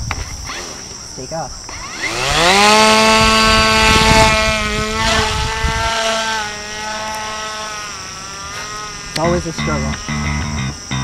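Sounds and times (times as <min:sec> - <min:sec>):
electric motor and propeller whine: 0:00.0 - 0:11.0
wind rumble on microphone: 0:01.5 - 0:06.6.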